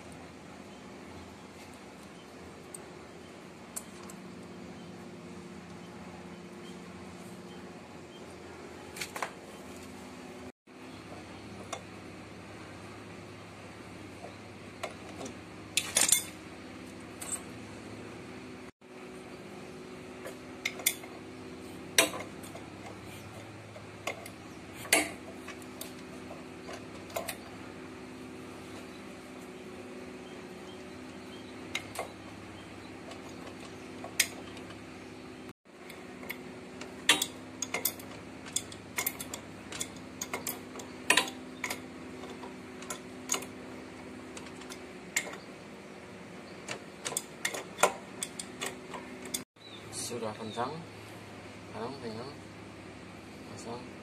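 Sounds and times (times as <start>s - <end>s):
steady low hum: 0.0s - 54.0s
metal tools clinking: 15.8s - 16.4s, 36.2s - 43.5s.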